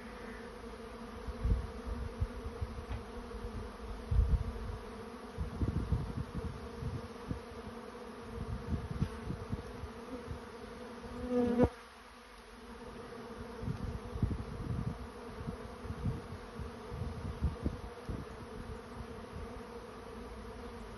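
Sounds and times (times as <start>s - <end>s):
bee swarm buzzing: 0.0s - 20.9s
single bee buzzing close by: 0.0s - 20.9s.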